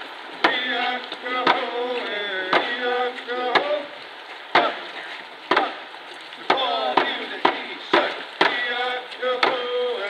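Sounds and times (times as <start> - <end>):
group singing: 0.4 - 5.8, 6.4 - 10.0
hand drum beat: 6.5 - 8.7.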